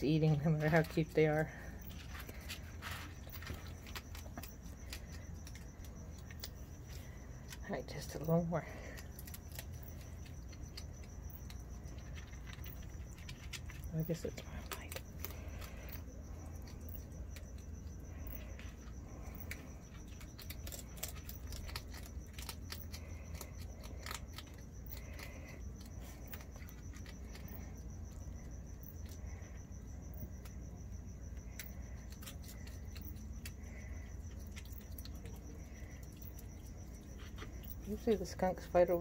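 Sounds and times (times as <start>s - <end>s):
animals crunching dry food: 0.0s - 39.0s
crickets chirping: 0.0s - 39.0s.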